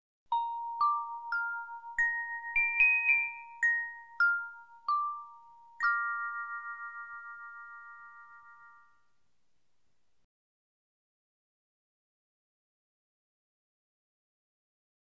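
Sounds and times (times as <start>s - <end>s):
bell-like jingle: 0.3s - 9.2s.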